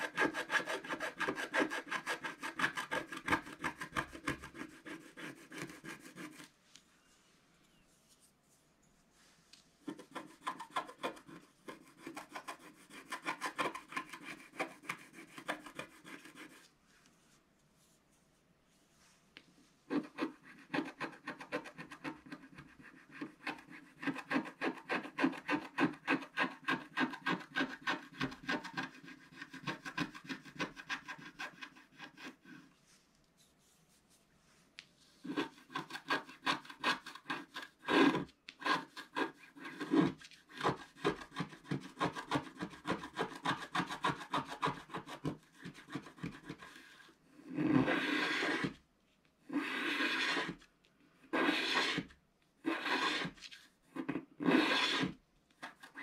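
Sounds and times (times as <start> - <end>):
wooden stick scraping paper: 0.0 - 6.6, 9.2 - 17.1, 19.8 - 48.8, 49.5 - 50.7, 51.3 - 56.0.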